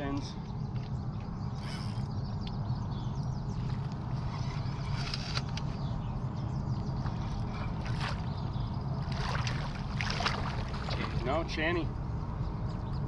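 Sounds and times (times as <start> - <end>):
low rumble: 0.0 - 13.0
water sloshing: 6.8 - 11.7
fish splashing: 9.0 - 11.2.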